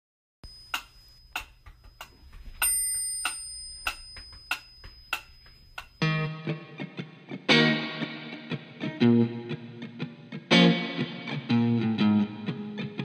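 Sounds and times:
bell-like ring: 0:00.4 - 0:06.3
metronome ticking: 0:00.5 - 0:06.1.

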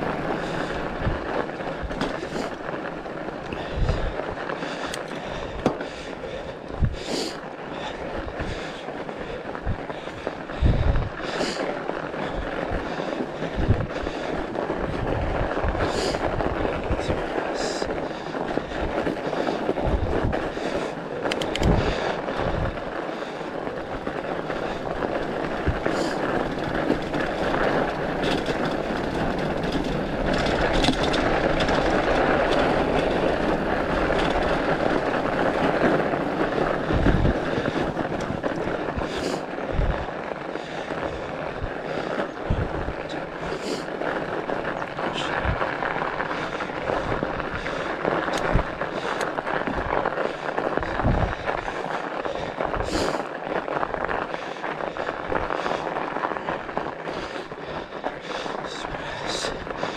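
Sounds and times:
bike tyres on snow: 0:00.0 - 0:59.9
wind on microphone: 0:03.6 - 0:04.4, 0:06.6 - 0:07.1, 0:09.6 - 0:11.5, 0:12.2 - 0:22.9, 0:25.6 - 0:40.1, 0:41.0 - 0:43.5, 0:44.2 - 0:53.1
small clicks: 0:21.2 - 0:21.8.

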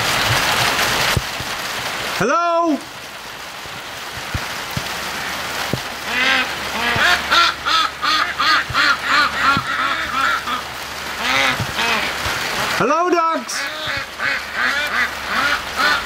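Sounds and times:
steady rain: 0:00.0 - 0:16.0
ducks quacking: 0:06.0 - 0:12.4, 0:13.5 - 0:16.0.

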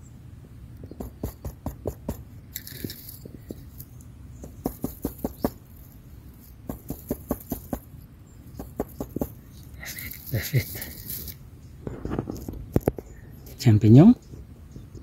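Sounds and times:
brush scratching mushroom cap: 0:01.0 - 0:08.0, 0:08.6 - 0:11.4.

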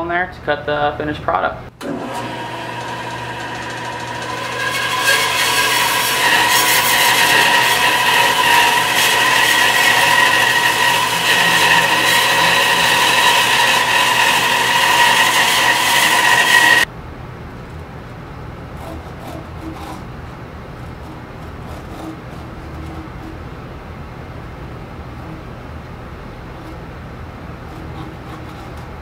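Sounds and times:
bandsaw cutting wood: 0:01.8 - 0:16.9.

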